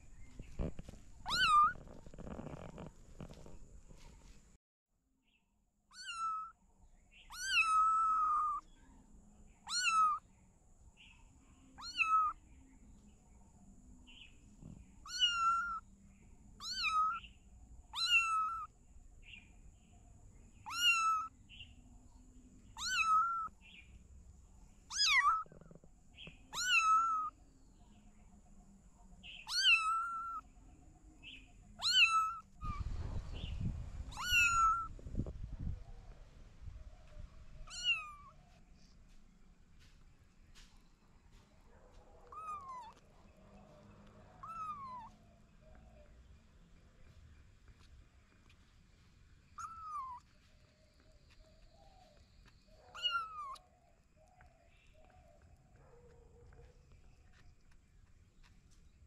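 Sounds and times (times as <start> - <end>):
kitten meowing: 0.6 - 2.9, 5.9 - 6.5, 7.3 - 8.6, 9.7 - 10.2, 11.8 - 12.4, 15.1 - 15.8, 16.6 - 17.2, 18.0 - 18.7, 20.7 - 21.3, 22.8 - 23.5, 24.9 - 25.7, 26.5 - 27.3, 29.5 - 30.4, 31.8 - 32.5, 34.1 - 34.9, 37.7 - 38.3, 42.3 - 43.0, 44.4 - 45.1, 49.6 - 50.2, 52.9 - 53.6
low rumbling noise: 32.6 - 34.2.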